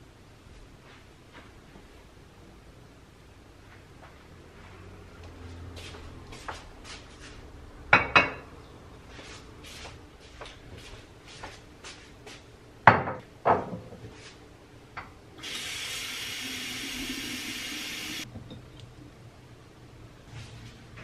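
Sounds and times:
glass vases clinking on countertop: 7.9s - 8.4s
kitchen tap running: 15.4s - 18.2s.

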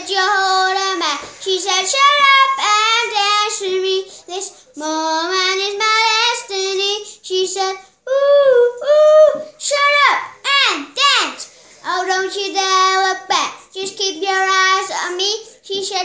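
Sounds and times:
girl singing unaccompanied: 0.0s - 16.0s
breaths between phrases: 4.0s - 4.8s, 7.0s - 8.1s, 15.4s - 15.7s.

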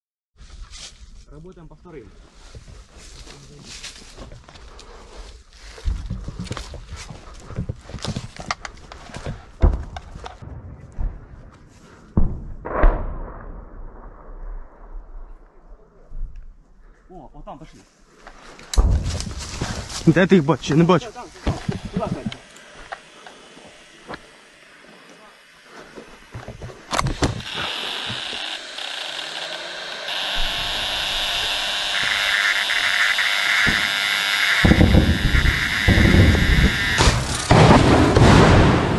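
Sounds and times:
brush rustling: 0.4s - 1.3s, 2.1s - 7.4s, 17.7s - 32.6s
heavy thumps and knocks: 9.2s - 10.3s, 31.9s - 38.3s
footsteps in dry leaves: 17.8s - 22.9s
steady high buzzing tone: 20.1s - 37.5s
lower buzzing tone: 21.2s - 37.5s.

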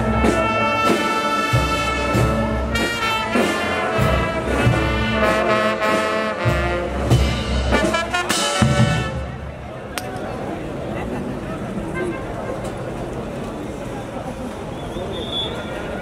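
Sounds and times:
brass band playing dance tune: 0.0s - 9.6s.

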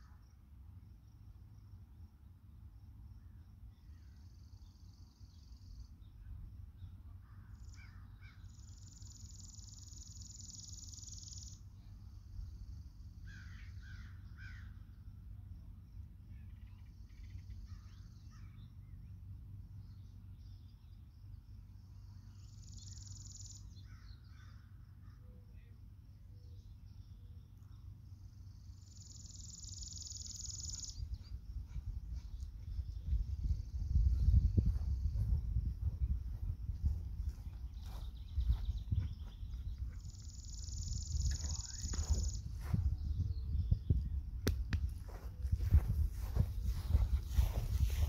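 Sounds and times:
insect trills: 2.8s - 18.8s, 19.5s - 48.0s
distant birds calling: 6.8s - 15.3s, 16.3s - 33.9s
low steady rumble: 11.6s - 48.0s.

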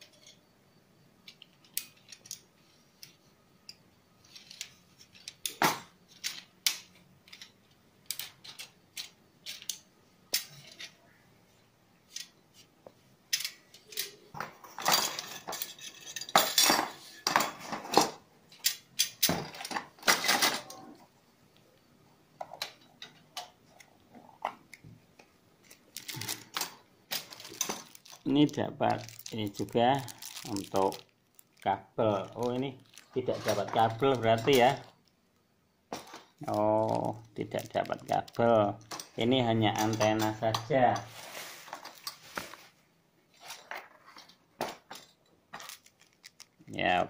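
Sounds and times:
metal rods clinking and rattling: 1.2s - 11.0s, 13.3s - 20.9s, 25.6s - 31.4s, 32.2s - 34.9s, 35.9s - 41.1s.

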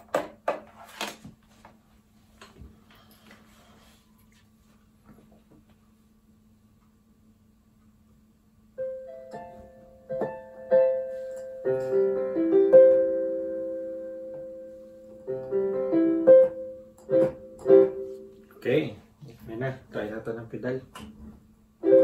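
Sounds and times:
keyboard piano notes and chords: 8.8s - 18.8s, 21.8s - 22.0s.

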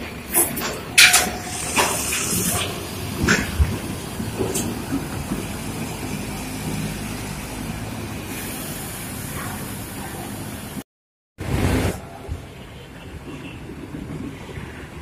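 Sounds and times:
bus engine droning: 0.0s - 10.8s.

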